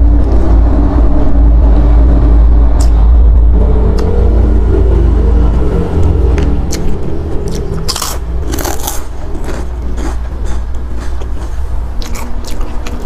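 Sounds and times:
crunchy food being chewed: 6.4 - 13.0.

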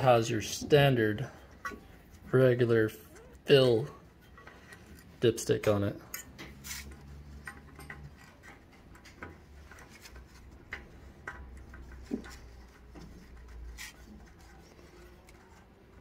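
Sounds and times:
dipstick clicking and rubbing: 6.1 - 16.0.

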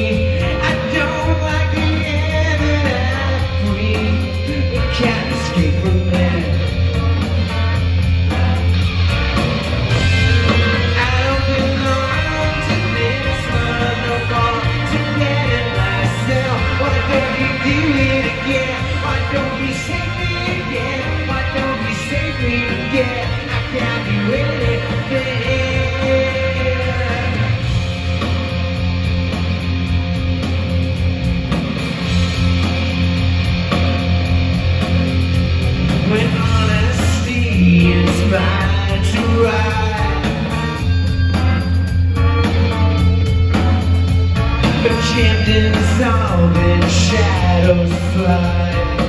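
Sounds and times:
lead vocal singing: 0.0 - 8.9, 9.9 - 27.8, 36.0 - 41.6, 44.4 - 49.0
live rock band playing: 0.0 - 49.0.

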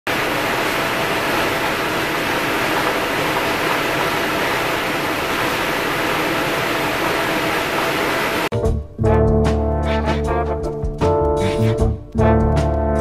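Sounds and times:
blower fans rushing air: 0.1 - 8.5.

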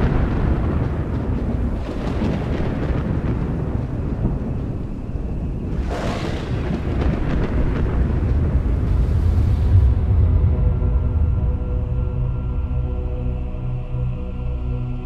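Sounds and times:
sharp thunderclap: 0.0 - 10.3
thunder rumbling: 0.0 - 12.0.

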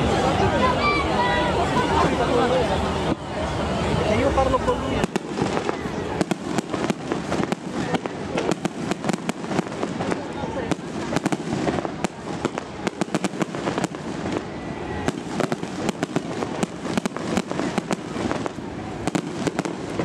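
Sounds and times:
fireworks crackling: 0.0 - 20.0
fireworks bangs and pops: 4.9 - 20.0.

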